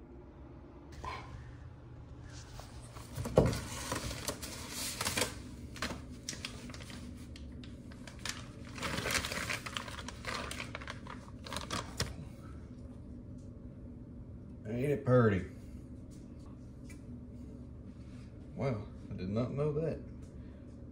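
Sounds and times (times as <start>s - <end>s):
plastic bag crinkling and rustling: 2.8s - 12.3s.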